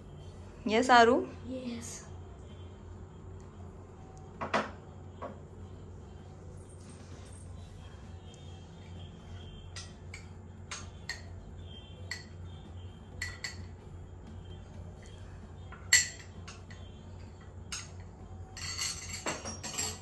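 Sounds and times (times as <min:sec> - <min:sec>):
metal spoon clinking on glass bowls: 0:09.7 - 0:11.4, 0:12.0 - 0:13.8, 0:15.0 - 0:16.9, 0:17.6 - 0:20.0.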